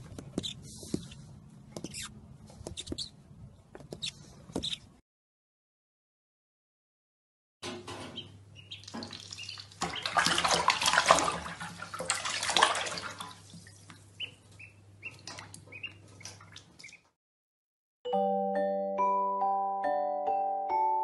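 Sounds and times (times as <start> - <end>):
duckling peeping: 0.3 - 0.7, 3.9 - 4.9, 8.1 - 10.2, 14.1 - 17.1
water splashing in a bathtub: 8.8 - 14.2, 15.2 - 17.1.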